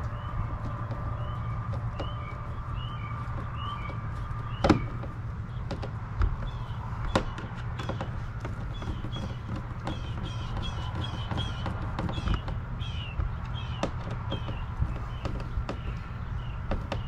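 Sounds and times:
bird chirping: 0:00.0 - 0:17.0
steady low hum: 0:00.0 - 0:17.0
plastic clicks and knocks: 0:04.6 - 0:12.6.

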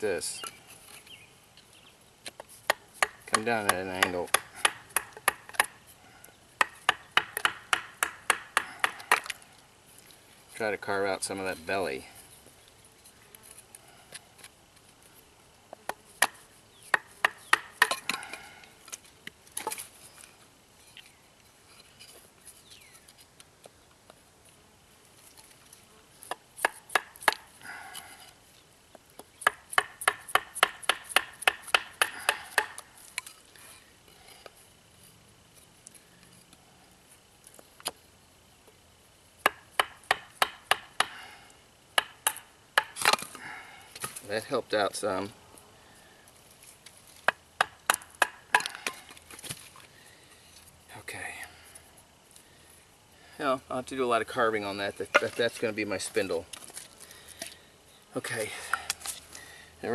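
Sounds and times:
knife carving wood: 0:02.2 - 0:06.0, 0:06.6 - 0:10.1, 0:15.7 - 0:18.2, 0:26.2 - 0:28.1, 0:29.2 - 0:33.8, 0:39.4 - 0:41.2, 0:42.0 - 0:43.3, 0:46.8 - 0:49.6.

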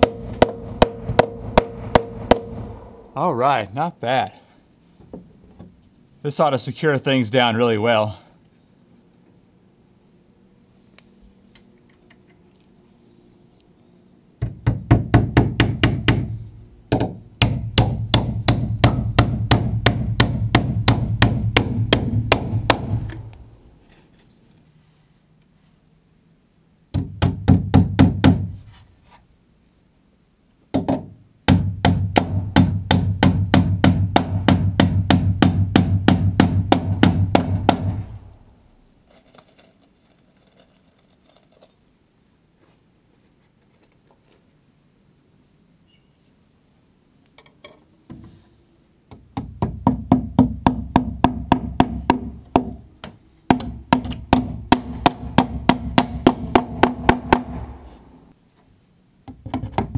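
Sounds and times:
hammering nails through metal: 0:00.0 - 0:02.6, 0:14.4 - 0:23.4, 0:26.9 - 0:28.6, 0:30.8 - 0:38.2, 0:49.1 - 0:57.7, 0:59.3 - 0:59.9.

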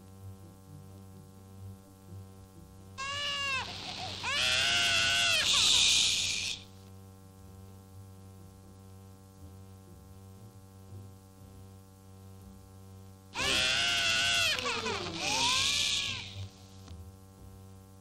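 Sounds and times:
cartoon baby screaming and wailing: 0:03.0 - 0:06.6, 0:13.4 - 0:16.5.

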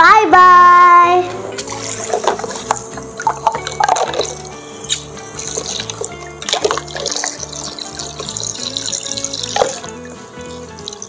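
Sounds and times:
rhythmic background music: 0:00.0 - 0:11.0
tap water splashing into basin: 0:01.6 - 0:04.4, 0:05.0 - 0:10.1.

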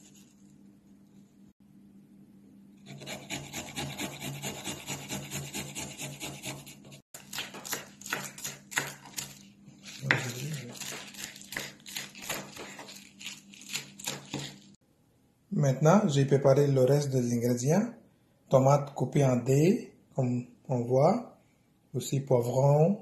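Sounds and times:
food grated on metal grater: 0:02.8 - 0:14.8
knife chopping on cutting board: 0:02.9 - 0:14.6.

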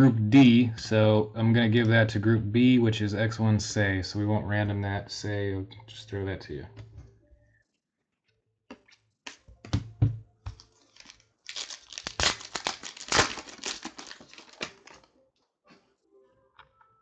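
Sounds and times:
trading cards clicking and rustling: 0:09.3 - 0:15.1
foil wrapper crinkling and tearing: 0:10.5 - 0:15.1.

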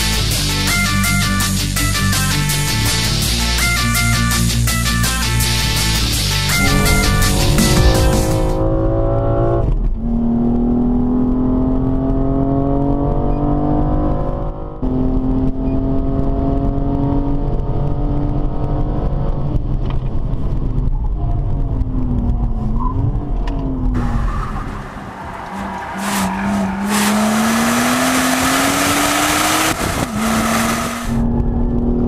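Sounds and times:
car engine revving hard: 0:06.5 - 0:19.1, 0:24.0 - 0:31.2.

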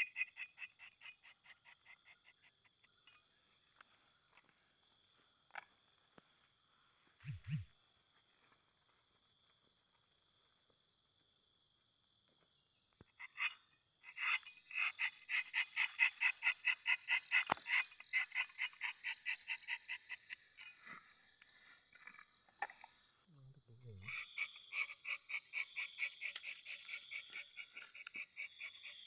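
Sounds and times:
night insects droning: 0:00.1 - 0:29.0.

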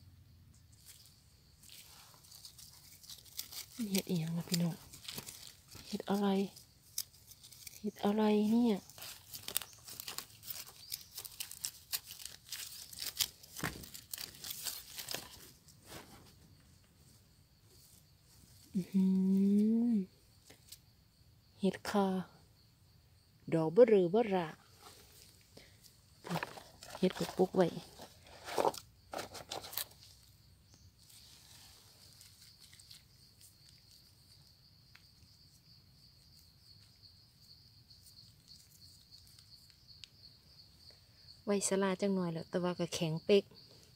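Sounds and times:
insects droning: 0:00.0 - 0:43.9
leaf rustling in basket: 0:00.6 - 0:20.8, 0:24.7 - 0:40.1
dry leaf litter crackling: 0:00.8 - 0:16.0, 0:26.2 - 0:30.2
knife scraping soil: 0:00.8 - 0:16.6, 0:26.2 - 0:30.3, 0:31.0 - 0:34.4.

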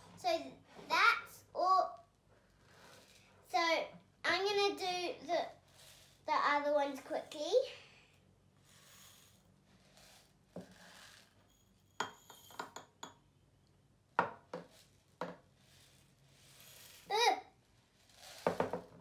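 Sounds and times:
rice pouring into glass: 0:08.7 - 0:12.7, 0:15.7 - 0:17.1, 0:18.0 - 0:18.8
glasses clinking on table: 0:12.0 - 0:13.2.

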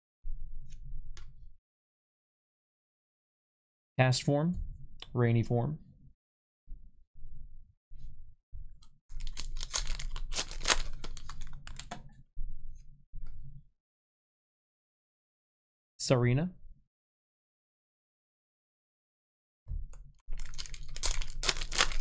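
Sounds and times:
foil wrapper crinkling: 0:09.2 - 0:11.9, 0:20.3 - 0:22.0.

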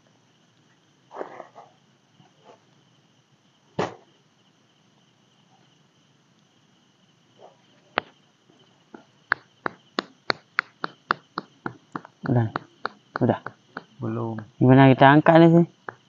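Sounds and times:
night insects droning: 0:00.0 - 0:16.0
sharp clicks or taps: 0:08.9 - 0:14.6, 0:15.8 - 0:16.0
sharp knock: 0:09.3 - 0:14.5.

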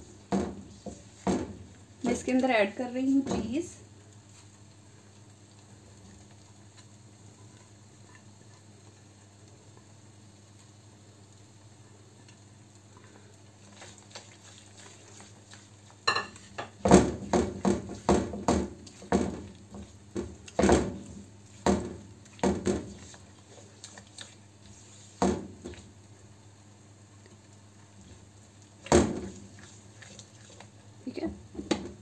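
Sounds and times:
spatula knocking and scraping pan: 0:13.7 - 0:25.9, 0:28.8 - 0:30.8.

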